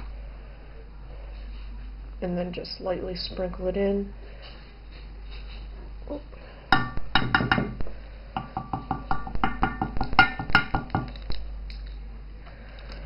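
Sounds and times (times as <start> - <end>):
metal loaf pan knocking: 6.8 - 7.8, 8.5 - 11.1.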